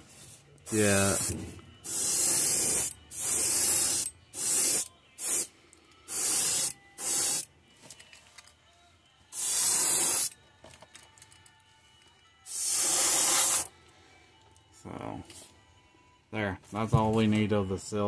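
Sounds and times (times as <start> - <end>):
airbrush spraying hiss: 0.1 - 5.5, 6.1 - 7.5, 9.3 - 10.3, 12.5 - 13.7.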